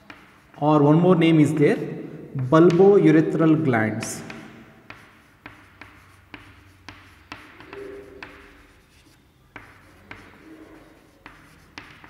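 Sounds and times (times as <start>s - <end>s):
chalk tapping on blackboard: 0.0s - 0.8s, 2.4s - 3.1s, 4.0s - 12.0s
chalk scratching: 0.0s - 1.0s, 4.2s - 12.0s.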